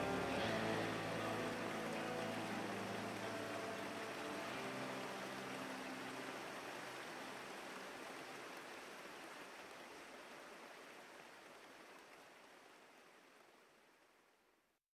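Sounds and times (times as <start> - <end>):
low held notes: 0.0 - 6.4.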